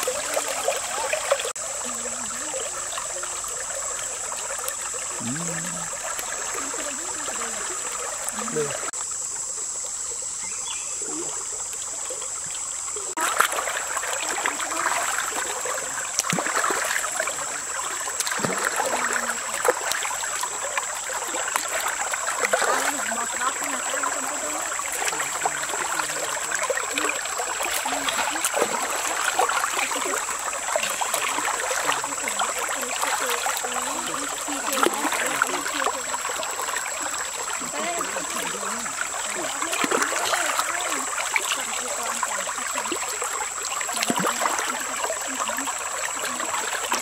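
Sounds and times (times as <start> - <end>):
stream running: 0.0 - 47.0
hands splashing in water: 13.2 - 20.2, 21.4 - 23.6.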